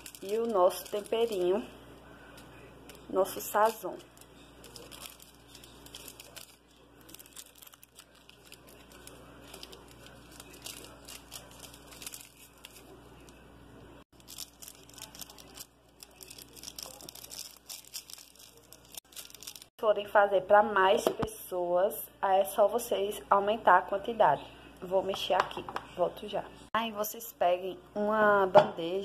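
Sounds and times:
seasoning sachet crinkling and tearing: 0.0 - 13.4, 14.1 - 19.7.

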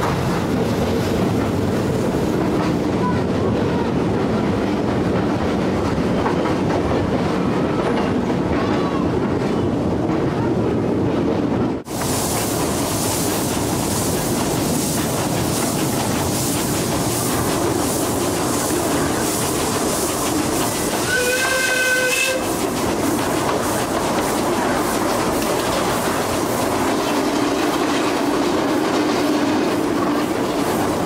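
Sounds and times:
steam train hissing and rattling: 0.0 - 9.4, 10.6 - 31.0
steam whistle blowing: 21.0 - 22.5.

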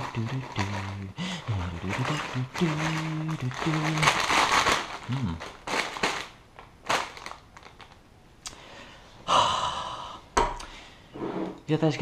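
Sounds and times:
chip bag crinkling: 0.0 - 8.0.

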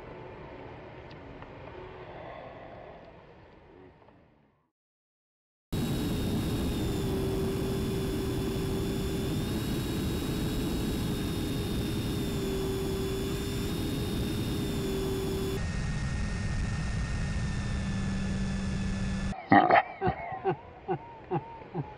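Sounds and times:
motor whine: 5.7 - 19.4.

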